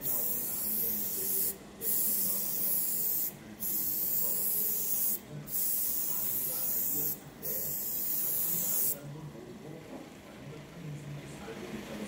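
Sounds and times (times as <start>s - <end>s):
airbrush spraying hiss: 0.0s - 9.0s.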